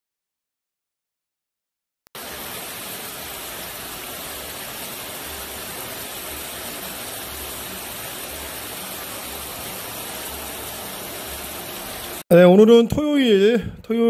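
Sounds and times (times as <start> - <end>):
water spraying onto car: 2.2 - 12.2.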